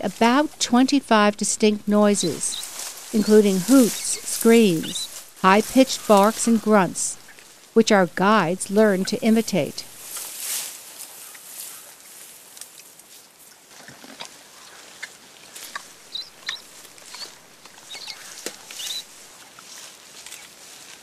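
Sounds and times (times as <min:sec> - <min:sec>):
rustling of undergrowth: 0:00.0 - 0:21.0
crackles and snaps of twigs: 0:02.6 - 0:03.2, 0:10.0 - 0:13.2, 0:14.0 - 0:21.0.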